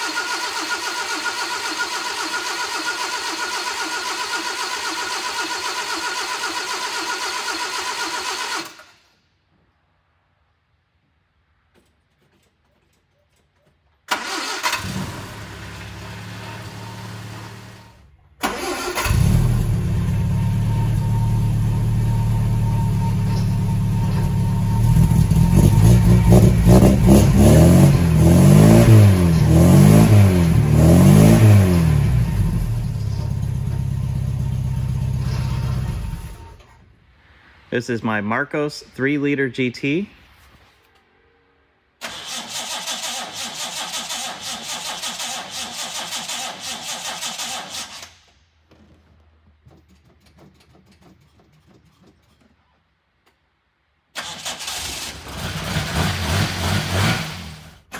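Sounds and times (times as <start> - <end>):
car engine starting and revving: 0.0 - 9.0, 14.1 - 36.8, 42.0 - 48.2, 54.2 - 57.9.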